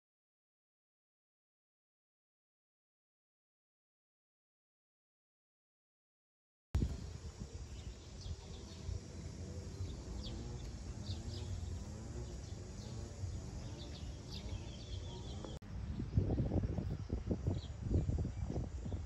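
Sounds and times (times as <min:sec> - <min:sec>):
birds chirping: 0:06.8 - 0:19.0.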